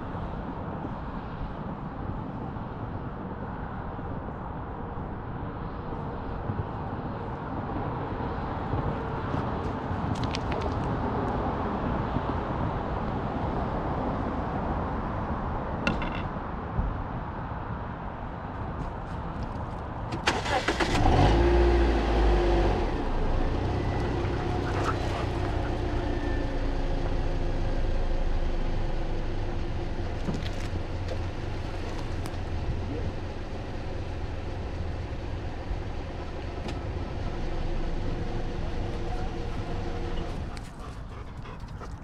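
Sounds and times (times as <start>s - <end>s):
car engine starting and running: 20.1s - 41.6s.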